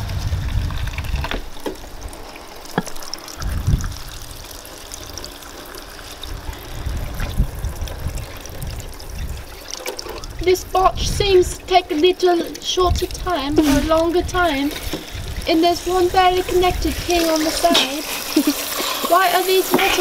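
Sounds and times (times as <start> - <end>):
low rumble on microphone: 0.0 - 2.2, 3.4 - 5.2, 6.2 - 11.8
hose water running: 0.0 - 20.0
water trickling into water: 0.0 - 20.0.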